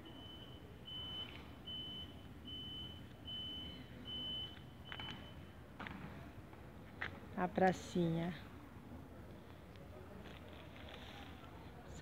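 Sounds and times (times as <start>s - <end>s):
high-pitched beeps: 0.0s - 5.6s.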